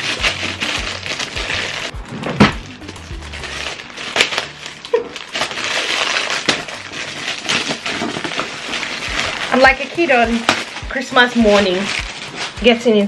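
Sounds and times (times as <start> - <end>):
background music: 0.0 - 13.0
packaging wrap crinkling: 0.0 - 13.0.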